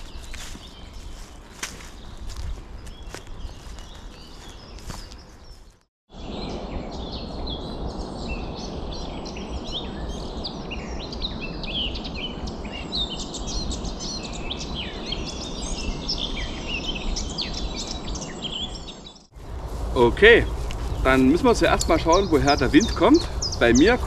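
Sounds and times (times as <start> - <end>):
songbirds chirping and singing: 0.0 - 19.3, 20.0 - 24.0
steady rushing noise: 19.4 - 24.0.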